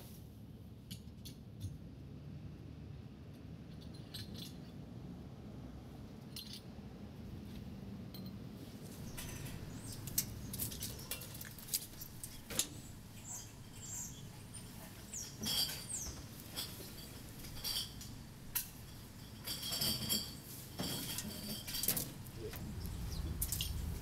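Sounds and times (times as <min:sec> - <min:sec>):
trash clinking and rustling: 0:08.9 - 0:24.0
knocks and scrapes in metal dumpster: 0:19.4 - 0:22.2
low steady rumble: 0:21.6 - 0:24.0.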